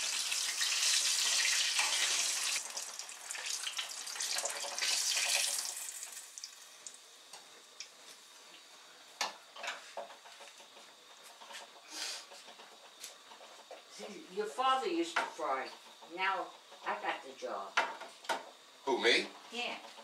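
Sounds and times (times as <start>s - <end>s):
food sizzling in hot oil: 0.0s - 8.1s.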